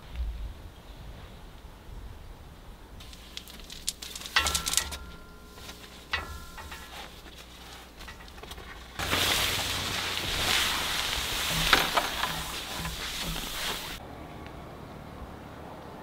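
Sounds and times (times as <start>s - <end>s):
camp gear clicks and rustles: 3.0s - 14.0s
ringing metallic clinks: 4.2s - 7.4s.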